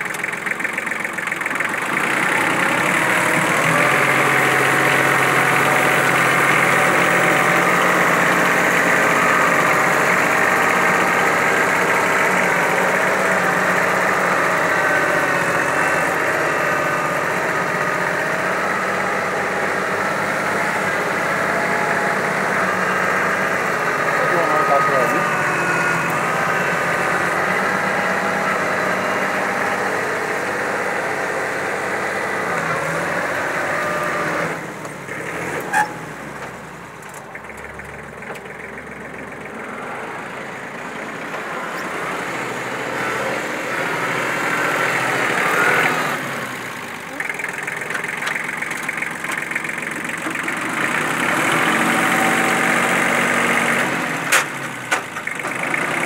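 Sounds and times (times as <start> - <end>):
tractor diesel engine running: 0.0 - 56.0
rotary tiller churning soil: 43.7 - 56.0.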